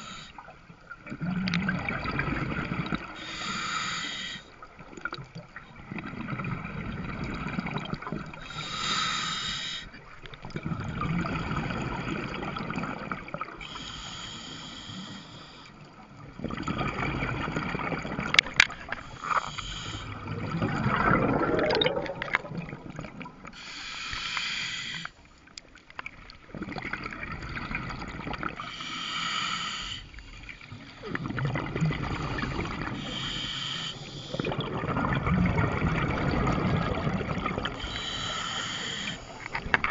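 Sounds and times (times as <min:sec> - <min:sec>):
regulator inhale hiss: 0:00.0 - 0:00.5, 0:03.1 - 0:04.6, 0:08.4 - 0:10.0, 0:13.6 - 0:15.9, 0:18.8 - 0:20.3, 0:23.5 - 0:25.4, 0:28.6 - 0:31.0, 0:32.8 - 0:34.5, 0:37.7 - 0:39.9
exhale bubbling rumble: 0:01.0 - 0:03.2, 0:05.1 - 0:08.4, 0:10.4 - 0:13.5, 0:16.3 - 0:23.5, 0:30.7 - 0:33.4, 0:34.2 - 0:39.4.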